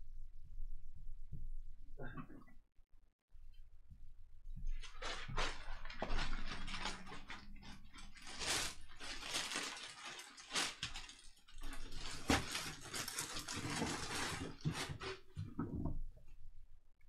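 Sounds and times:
packaging rustling and crinkling: 4.7 - 15.3.

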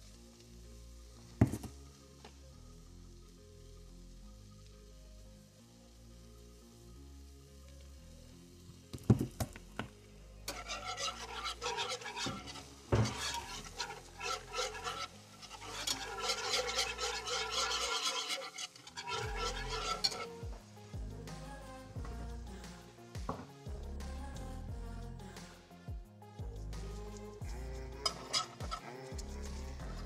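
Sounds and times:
whisk scraping a pan: 10.5 - 20.6, 26.8 - 30.0
whisk knocking on a pan: 10.6 - 15.0, 15.7 - 18.3, 19.1 - 20.2.

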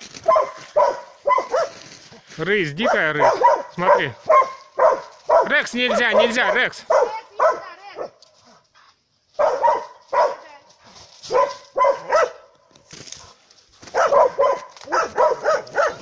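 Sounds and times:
dog barking: 0.2 - 1.9, 2.8 - 8.2, 9.4 - 10.5, 11.2 - 12.5, 13.8 - 16.0.

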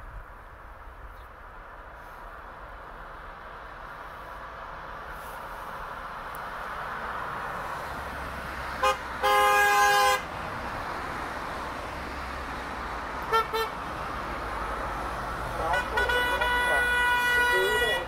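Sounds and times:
passing traffic noise: 0.0 - 18.0
car horns honking: 8.8 - 10.3, 13.2 - 13.8, 15.5 - 18.0.

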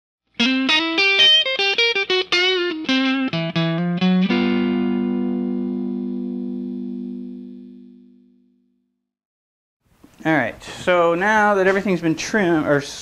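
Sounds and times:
electric guitar riff: 0.4 - 8.6.

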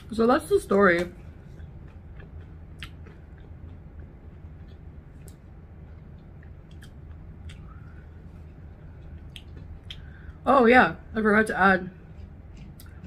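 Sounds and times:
chewing crispy chicken: 0.0 - 10.4
low hum: 0.0 - 13.0.

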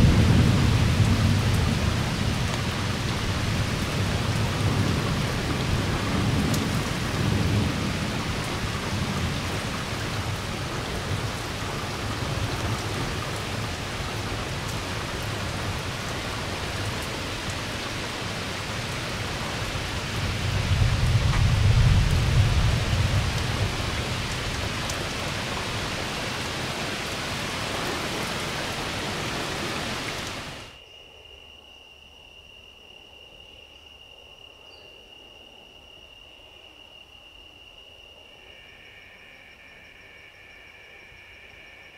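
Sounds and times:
thunder rumbling: 0.0 - 30.6
heavy rain pouring: 0.0 - 30.8
high insect trill: 30.7 - 41.9.

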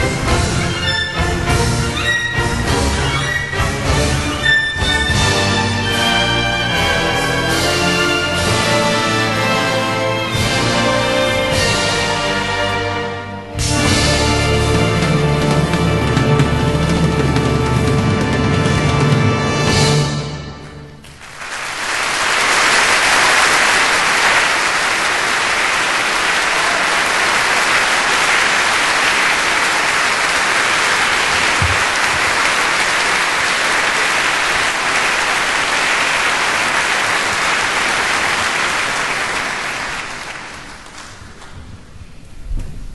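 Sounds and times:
audience applauding: 21.0 - 41.8.

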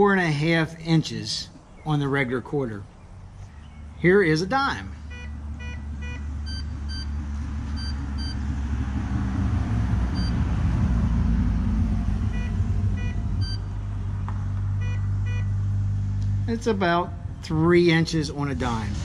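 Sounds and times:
road traffic rumble: 0.0 - 19.0
metal detector beeps: 5.1 - 7.1, 7.8 - 8.4, 10.2 - 10.4, 12.4 - 13.7, 14.8 - 15.5.

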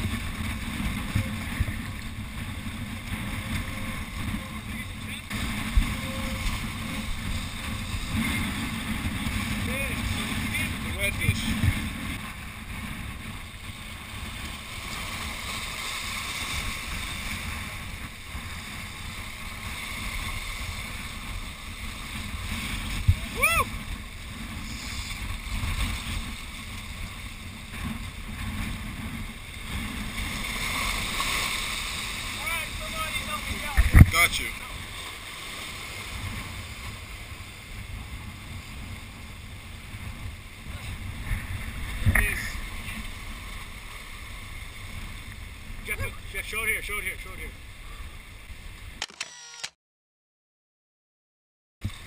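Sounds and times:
wind buffeting microphone: 0.0 - 35.0
waves breaking against rocks: 0.0 - 48.2.

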